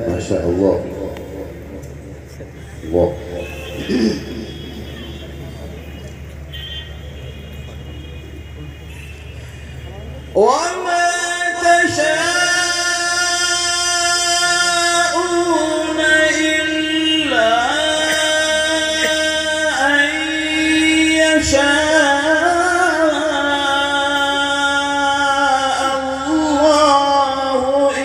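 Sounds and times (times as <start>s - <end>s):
man chanting through loudspeakers: 0.0s - 5.8s, 10.2s - 28.0s.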